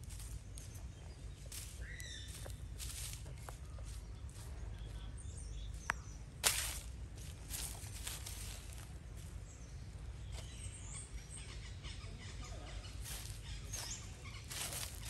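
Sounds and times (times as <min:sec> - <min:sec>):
hand scratching through dry leaves: 0:00.0 - 0:04.6, 0:06.4 - 0:09.4, 0:13.0 - 0:15.0
low outdoor rumble: 0:00.0 - 0:15.0
faint high bird chirps: 0:00.2 - 0:06.8, 0:10.3 - 0:15.0.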